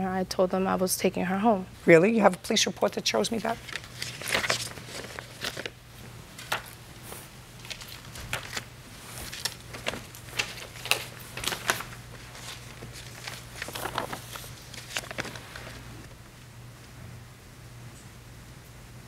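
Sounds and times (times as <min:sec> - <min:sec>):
paper rustling: 0:03.3 - 0:16.1.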